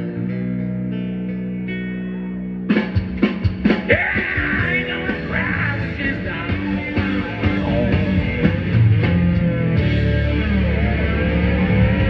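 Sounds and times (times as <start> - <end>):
bass guitar: 0.0 - 12.0
electric guitar: 0.0 - 12.0
drum kit: 2.6 - 12.0.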